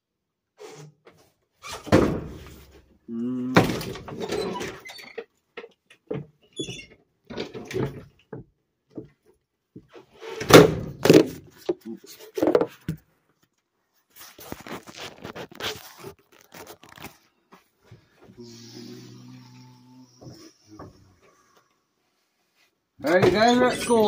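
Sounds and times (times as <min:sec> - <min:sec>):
knocks and thumps: 0:01.8 - 0:02.7
rubbing and scraping: 0:14.1 - 0:17.7.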